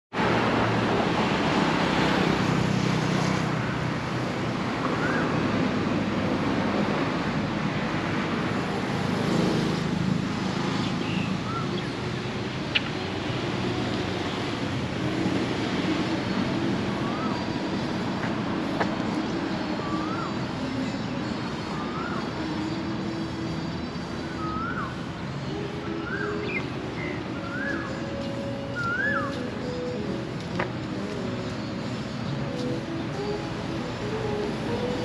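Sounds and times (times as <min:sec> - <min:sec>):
motor traffic hum: 0:00.1 - 0:35.0.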